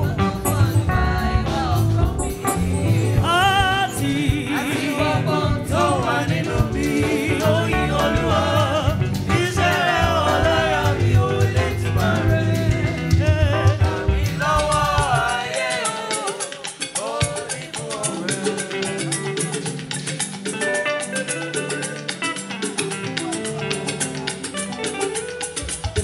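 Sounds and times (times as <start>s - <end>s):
steady bass line: 0.0s - 15.4s
gospel choir singing: 0.0s - 19.6s
band accompaniment: 0.0s - 26.0s.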